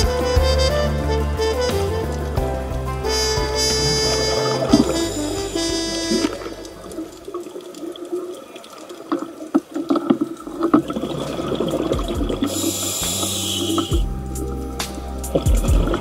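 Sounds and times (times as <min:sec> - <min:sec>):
bubbling water: 0:03.1 - 0:16.0
hissing bubbles from diver exhaling: 0:10.0 - 0:14.0.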